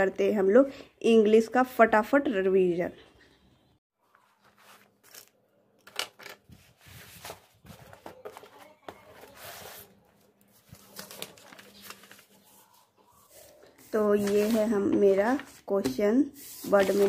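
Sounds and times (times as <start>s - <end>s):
paper rustling: 4.0s - 17.0s.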